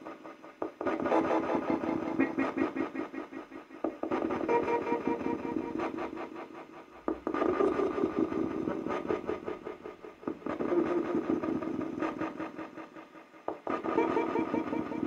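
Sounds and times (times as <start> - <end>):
choppy electronic noise from speaker: 0.0 - 15.0.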